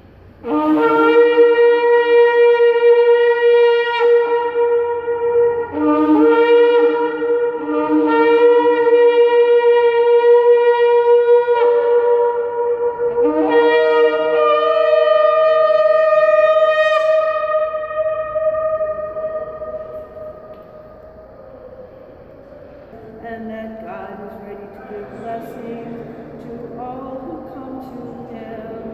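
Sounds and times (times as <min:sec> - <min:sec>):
horn notes ringing in a hall: 0:00.0 - 0:28.9
ram's-horn blasts: 0:00.4 - 0:23.4.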